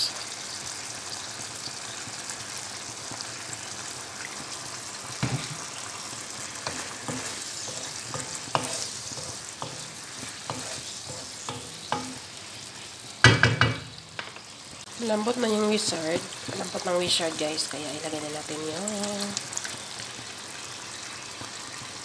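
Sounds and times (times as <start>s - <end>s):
food sizzling in a pan: 0.0s - 22.0s
wooden spatula scraping pan: 6.6s - 12.2s.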